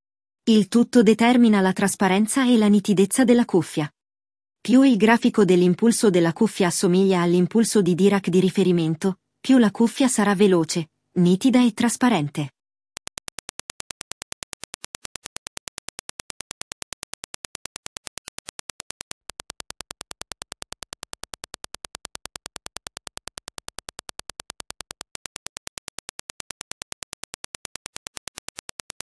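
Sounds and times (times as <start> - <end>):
rapid test clicks: 13.0 - 29.0.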